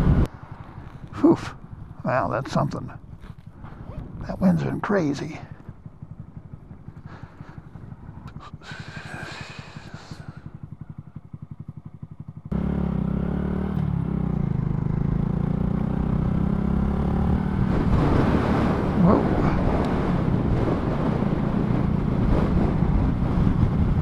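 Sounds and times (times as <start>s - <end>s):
wind rushing over microphone: 0.0s - 10.6s, 16.4s - 24.0s
motorcycle running at road speed: 0.0s - 24.0s
motorcycle engine idling: 0.2s - 17.2s.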